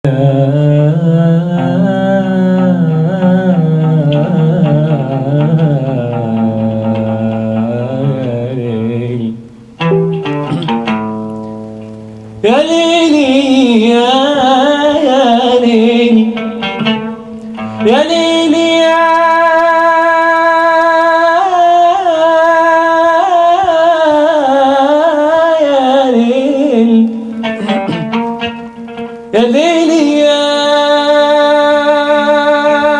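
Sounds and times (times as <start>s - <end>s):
person singing wordless melody: 0.0s - 11.0s, 12.4s - 32.9s
oud playing: 0.6s - 22.2s, 24.3s - 32.9s
plucked guitar notes: 9.8s - 12.4s, 16.2s - 17.9s, 27.2s - 29.3s.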